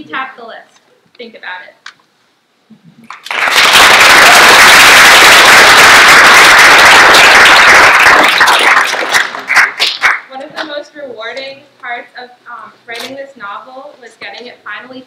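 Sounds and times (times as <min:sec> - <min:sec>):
audience applauding: 0:03.1 - 0:10.3.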